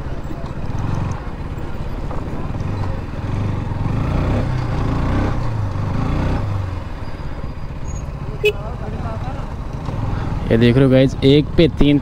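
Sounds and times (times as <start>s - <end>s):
motorcycle engine revving: 0.5s - 12.0s.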